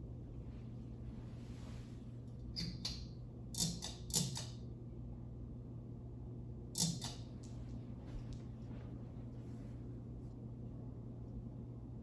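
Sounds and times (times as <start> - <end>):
fan motor low hum: 0.0 - 12.0
pull-chain switches clicking: 2.6 - 4.6.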